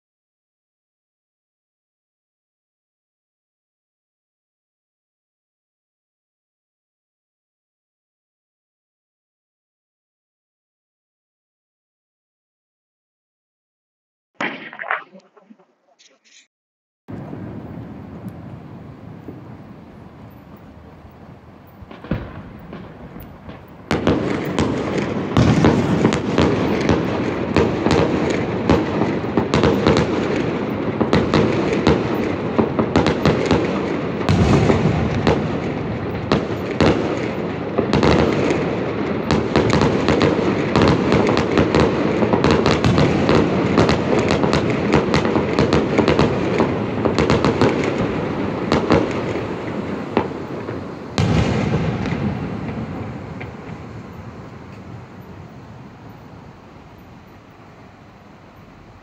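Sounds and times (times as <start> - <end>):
fireworks popping and banging: 14.4 - 16.4, 17.1 - 55.7.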